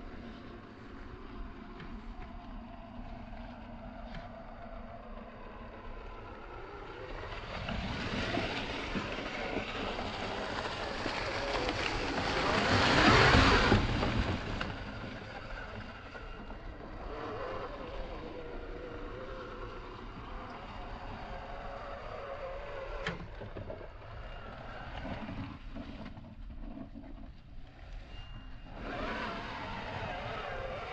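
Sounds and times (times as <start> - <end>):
rc car electric motor whining: 14.9 - 25.6, 27.8 - 30.9.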